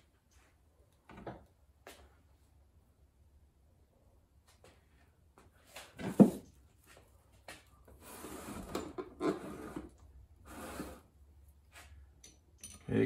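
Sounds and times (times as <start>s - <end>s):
tools set down on wooden bench: 5.9s - 6.5s.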